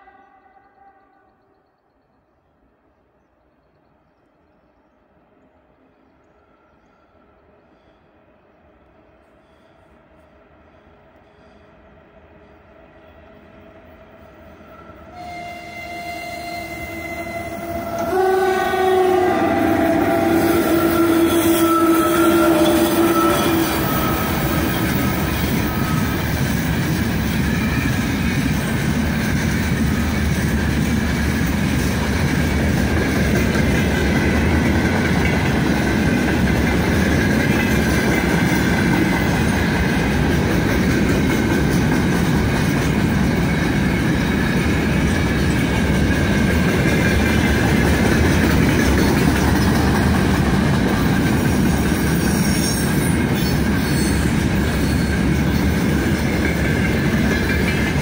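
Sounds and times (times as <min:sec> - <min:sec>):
train wheels rumbling on rails: 0:05.3 - 0:58.0
locomotive horn chord: 0:14.6 - 0:24.9.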